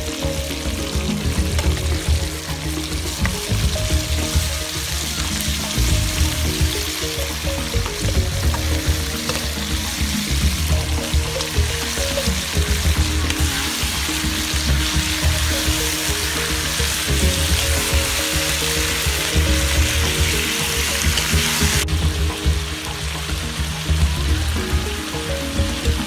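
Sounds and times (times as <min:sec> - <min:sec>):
background music: 0:00.0 - 0:26.0
meat sizzling in hot oil: 0:00.0 - 0:26.0.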